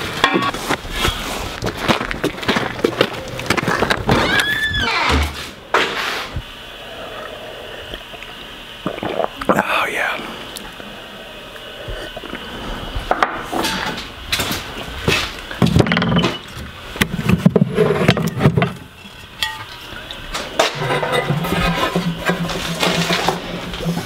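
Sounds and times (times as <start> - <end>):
steady low hum: 5.0 - 24.0
bottles and tools clinking: 15.8 - 16.6.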